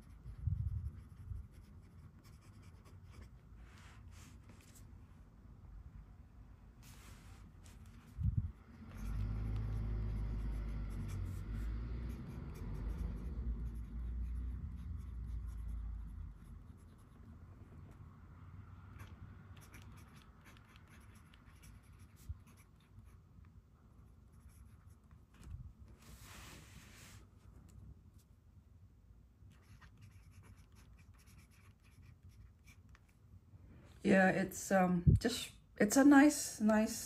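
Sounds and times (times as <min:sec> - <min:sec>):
fountain pen scratching paper: 0:08.9 - 0:17.1, 0:19.0 - 0:22.8.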